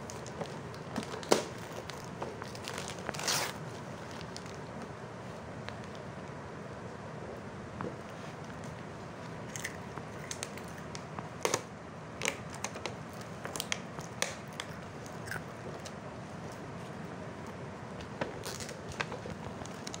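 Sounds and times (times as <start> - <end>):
plastic and paper crinkling: 0.0 - 6.0, 18.0 - 20.0.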